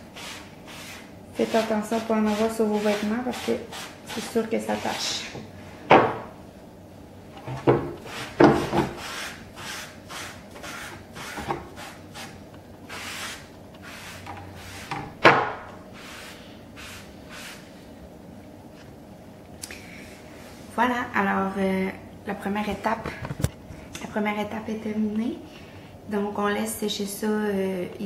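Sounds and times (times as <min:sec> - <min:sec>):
sponge swishing on wooden board: 0:16.0 - 0:17.7.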